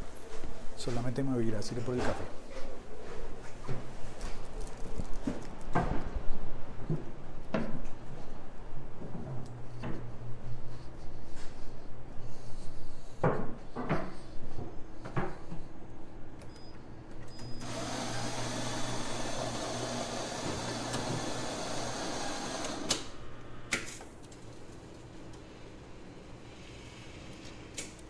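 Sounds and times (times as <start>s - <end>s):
coffee machine running: 17.6s - 23.0s.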